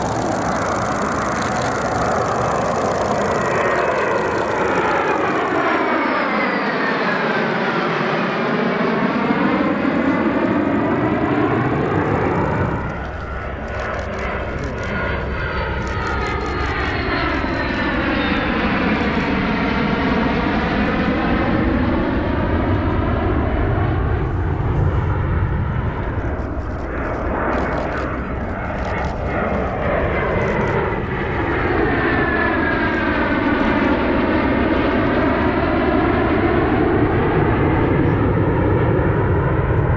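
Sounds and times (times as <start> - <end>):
faint high whine: 0.0 - 6.1
jet fighters passing overhead: 0.0 - 39.9.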